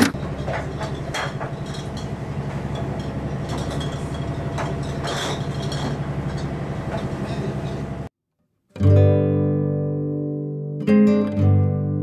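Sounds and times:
light knocks and clatters: 0.1s - 7.9s.

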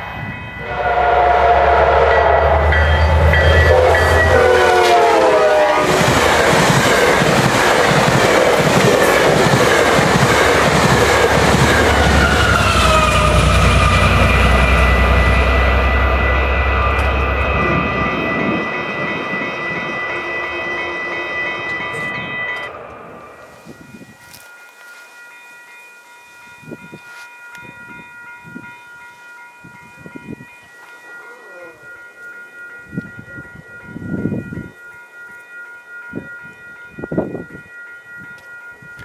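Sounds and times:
train horn: 0.0s - 7.2s, 11.7s - 23.6s
crossing warning bell ringing: 0.0s - 39.0s.

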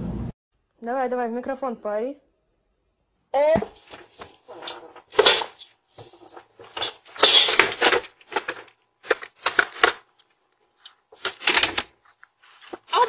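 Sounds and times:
footsteps: 3.4s - 9.9s.

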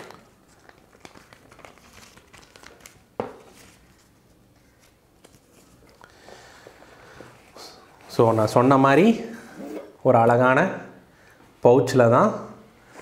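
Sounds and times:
paper rustling and crinkling: 0.0s - 6.1s.

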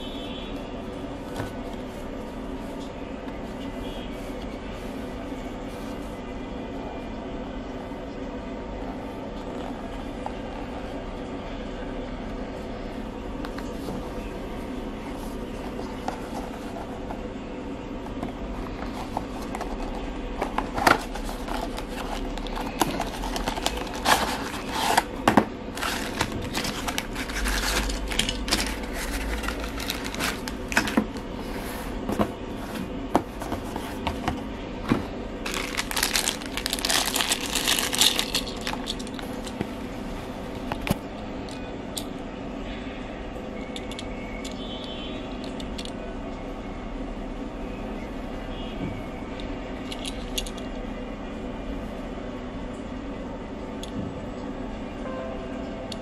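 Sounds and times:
cardboard scraping and tapping: 18.1s - 35.8s
plastic wrappers crinkling: 18.7s - 31.4s, 35.4s - 39.9s.

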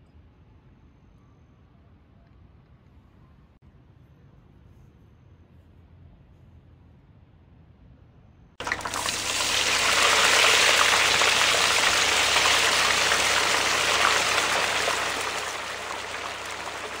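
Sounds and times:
running water trickle: 8.6s - 17.0s.

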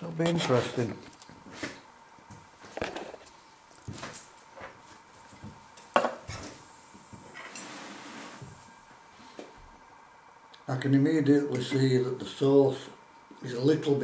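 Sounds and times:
soft hiss: 0.0s - 14.0s.

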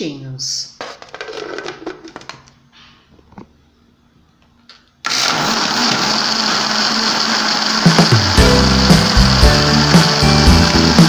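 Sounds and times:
blender motor running: 5.0s - 11.0s.

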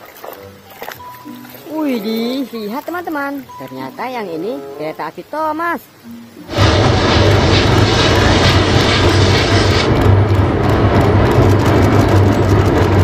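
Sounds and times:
pressure washer spraying water: 6.5s - 10.7s.

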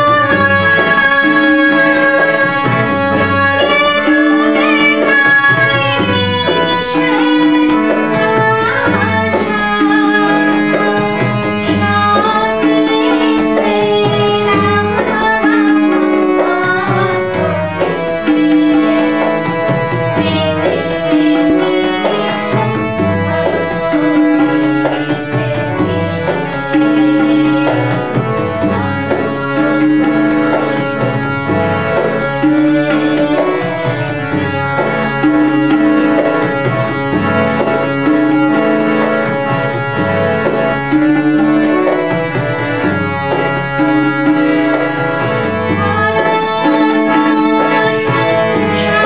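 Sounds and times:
harmonium melody: 0.0s - 49.0s
tabla rhythm: 0.0s - 49.0s.

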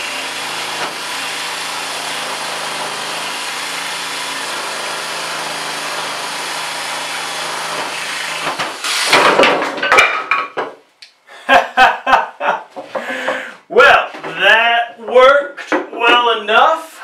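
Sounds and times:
jigsaw cutting board: 0.0s - 9.5s.

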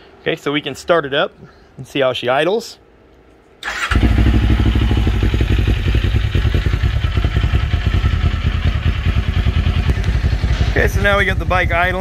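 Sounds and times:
motorcycle engine idling: 3.9s - 12.0s.

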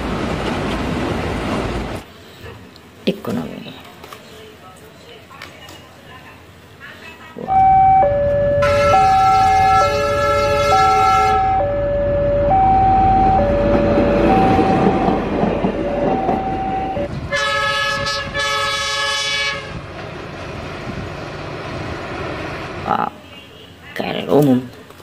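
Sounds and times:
train rumbling on rails: 0.0s - 2.7s, 7.3s - 23.2s
train horn blasts: 7.5s - 15.0s, 16.2s - 19.8s
two-note warning tone: 7.5s - 15.2s, 15.8s - 17.1s.

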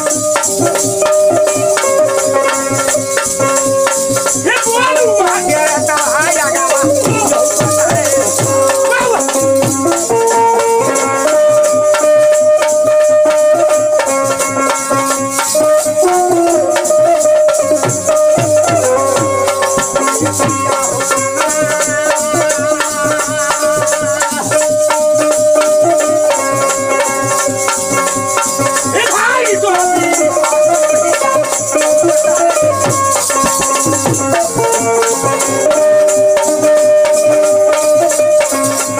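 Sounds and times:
hand drum: 0.0s - 38.9s
harmonium melody: 0.0s - 38.9s
person singing: 28.9s - 30.4s.

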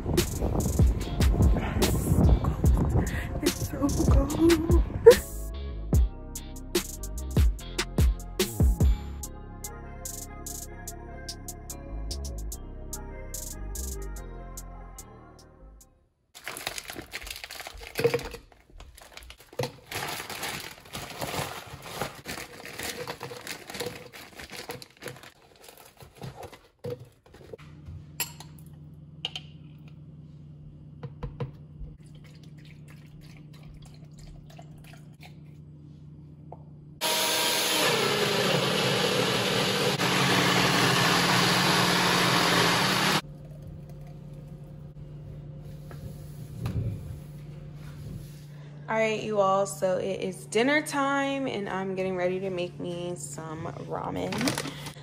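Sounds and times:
steady low hum: 43.3s - 50.8s.

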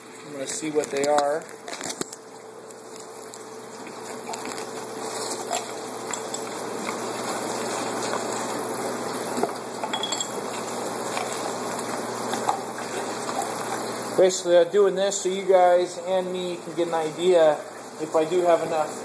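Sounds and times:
plastic bag crinkling: 0.3s - 8.6s
water trickling: 2.2s - 18.9s
small hard items clinking: 9.9s - 10.4s.

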